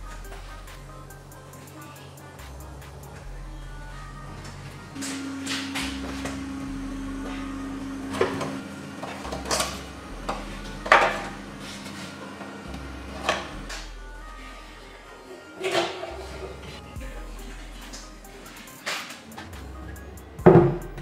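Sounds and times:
quiet background music: 0:00.0 - 0:21.0.

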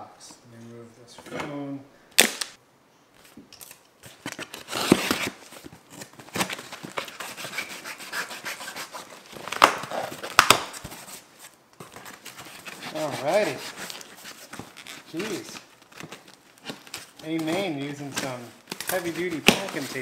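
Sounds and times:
knife slitting packing tape: 0:03.6 - 0:10.9
cardboard rubbing and crinkling: 0:04.1 - 0:20.0.

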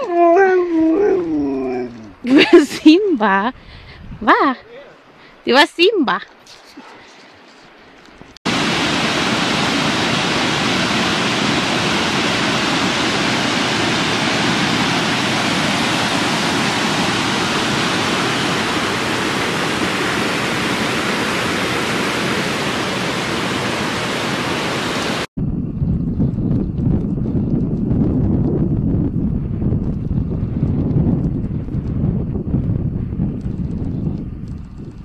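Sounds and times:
waterfall rushing: 0:08.5 - 0:25.3.

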